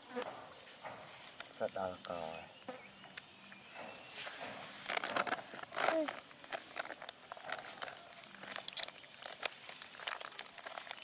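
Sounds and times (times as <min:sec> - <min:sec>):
rustling and crinkling: 0:03.7 - 0:11.0.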